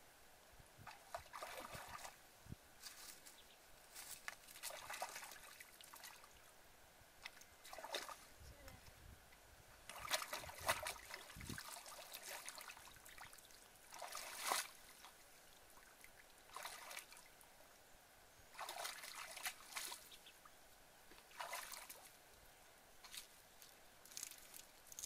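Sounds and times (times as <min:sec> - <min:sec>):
muddy water splashing: 0:00.8 - 0:02.2, 0:04.2 - 0:06.5, 0:07.2 - 0:08.4, 0:09.8 - 0:17.3, 0:18.5 - 0:20.3, 0:21.1 - 0:22.2.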